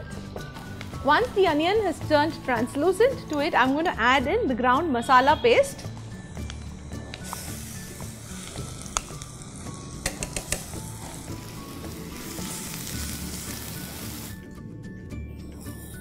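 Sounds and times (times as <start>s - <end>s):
paste and onions sizzling in oil: 0.4s - 3.0s, 5.8s - 14.5s
utensil clicking against pan: 10.0s - 10.8s.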